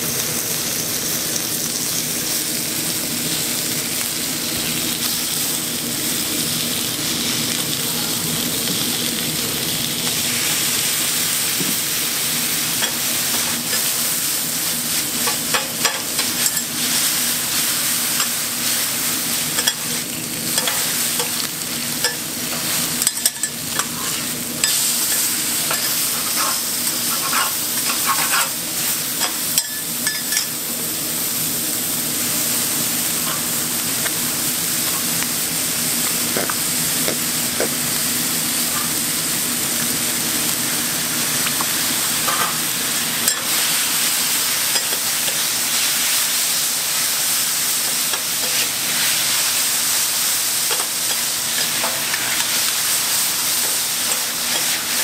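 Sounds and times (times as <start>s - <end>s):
meat and noodles sizzling on griddle: 0.0s - 55.0s
metal spatulas scraping griddle: 25.7s - 28.6s.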